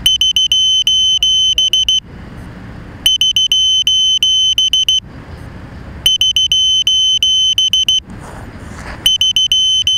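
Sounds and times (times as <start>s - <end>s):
rapid high-pitched buzzer beeps: 0.0s - 2.0s, 3.1s - 5.0s, 6.0s - 8.0s, 9.1s - 9.9s.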